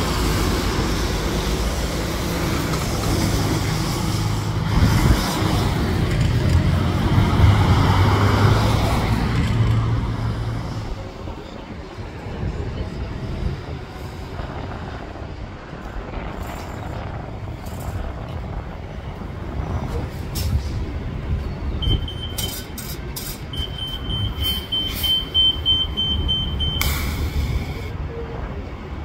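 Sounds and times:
bus engine running: 0.0s - 29.0s
traffic rumble: 0.0s - 29.0s
high-pitched beep: 21.8s - 22.6s, 23.5s - 26.9s
air hisses: 26.8s - 27.9s.

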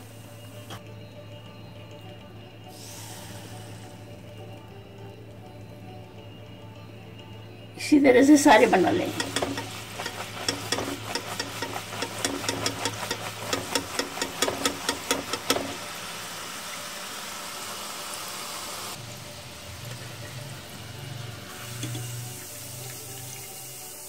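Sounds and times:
batter sizzling in hot oil: 2.7s - 4.2s, 8.6s - 24.0s.

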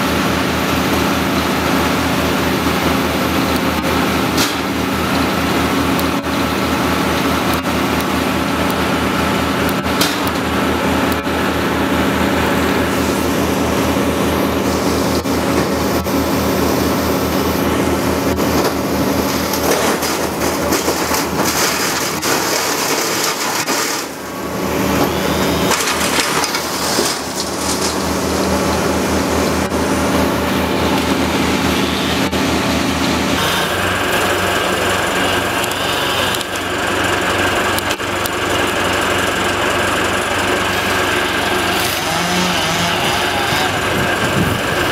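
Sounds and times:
engine running: 0.0s - 44.9s
wood cracking and splintering: 18.5s - 24.2s, 25.7s - 28.8s, 40.7s - 44.9s.

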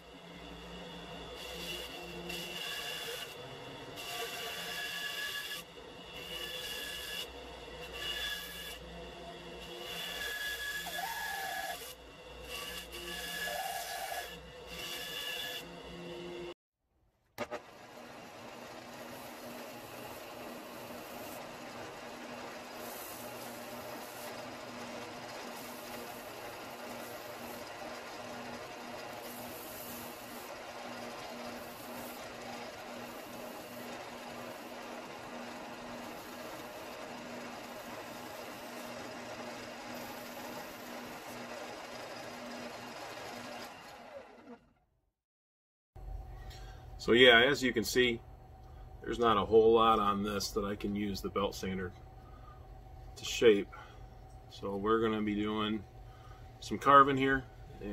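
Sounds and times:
motor hum with faint tone: 0.0s - 16.5s, 17.4s - 44.6s, 46.0s - 57.9s
bandsaw cutting wood: 1.2s - 16.6s, 17.4s - 44.6s
belt sander grinding wood: 17.4s - 44.5s.

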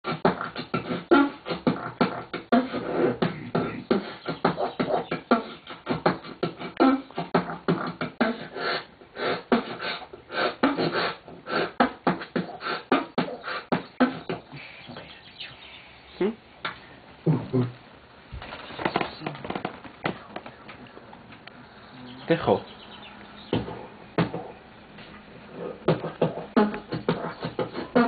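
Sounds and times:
beatboxing mouth hits: 0.1s - 15.2s, 18.8s - 20.9s, 23.4s - 24.6s, 25.5s - 28.0s
low hummed notes: 20.2s - 28.0s.

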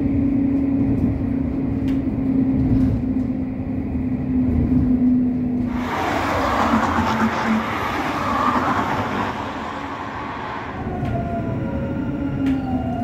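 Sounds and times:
tram running on rails: 0.0s - 13.0s.

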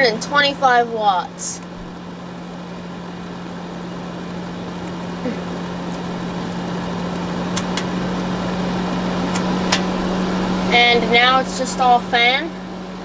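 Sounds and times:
heater fan humming: 0.0s - 13.0s
control switch clicks: 7.5s - 7.9s.

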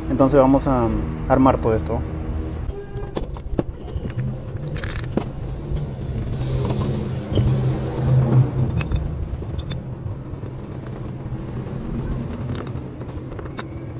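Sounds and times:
metal parts clicking and clinking: 3.0s - 6.8s, 8.6s - 11.2s.

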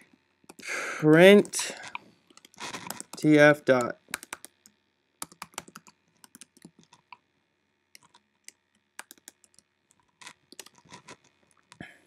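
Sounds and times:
keyboard keystrokes: 3.8s - 4.5s, 5.2s - 6.9s, 9.0s - 9.6s.

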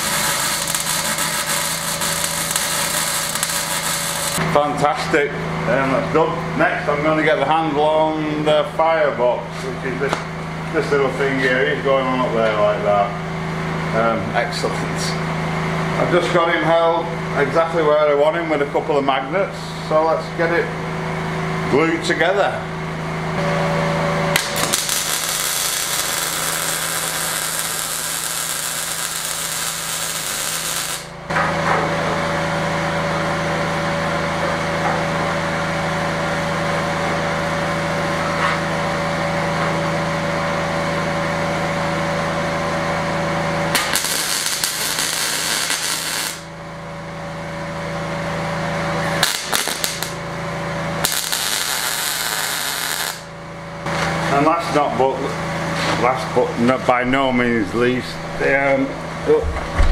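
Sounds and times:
welder arc hissing: 0.0s - 4.4s, 24.3s - 31.2s, 43.7s - 46.5s, 49.2s - 50.2s, 51.0s - 53.3s.

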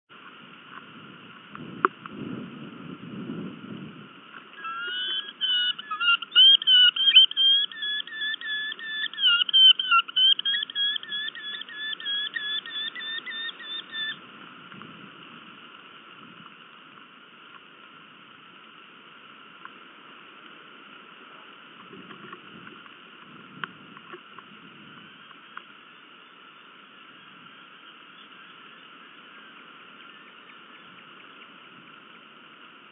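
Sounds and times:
falcon calling shrill notes: 4.6s - 14.2s.

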